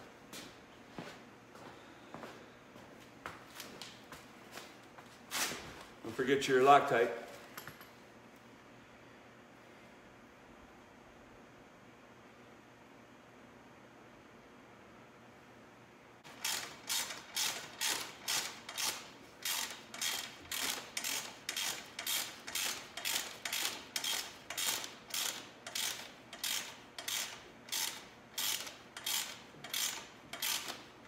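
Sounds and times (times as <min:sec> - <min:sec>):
socket ratchet clicking: 0:16.3 - 0:30.8.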